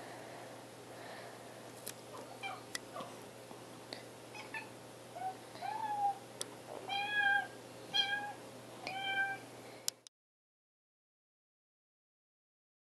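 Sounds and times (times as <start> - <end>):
kitten meowing: 4.4 - 6.2, 6.9 - 9.4.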